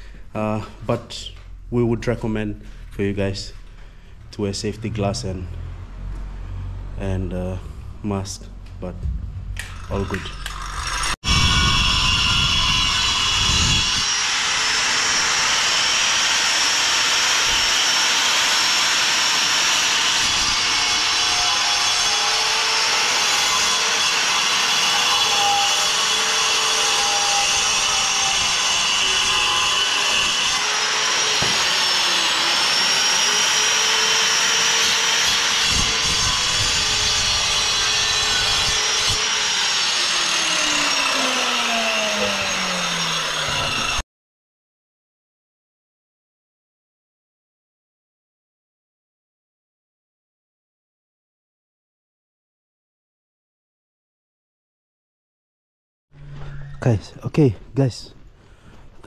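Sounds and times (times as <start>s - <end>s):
angle grinder cutting tile: 9.6s - 44.0s.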